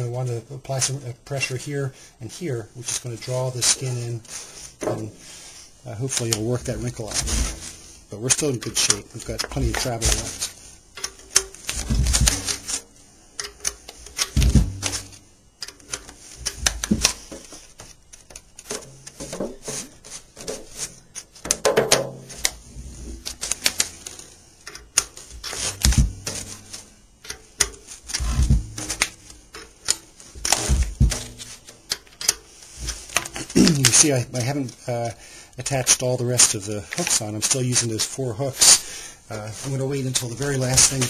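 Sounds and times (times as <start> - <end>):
dull thumps of handling: 3.9 - 5.4, 6.0 - 12.9, 13.5 - 15.3, 15.9 - 24.2, 25.2 - 31.9
metallic clicks and rattles: 8.4 - 17.5, 23.2 - 34.0.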